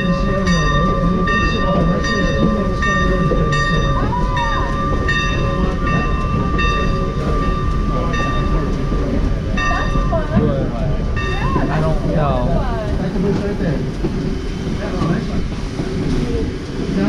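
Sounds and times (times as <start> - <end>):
train low rumble: 0.0 - 17.0
wheels clicking on track: 0.0 - 17.0
high squeal: 3.6 - 9.2.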